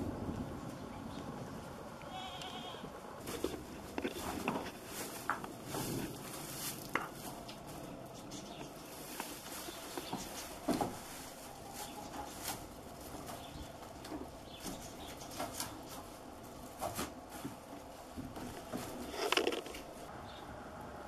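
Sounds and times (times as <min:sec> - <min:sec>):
leaves and twigs rustling: 0:00.0 - 0:20.1
scrapes against wooden boards: 0:18.2 - 0:19.9.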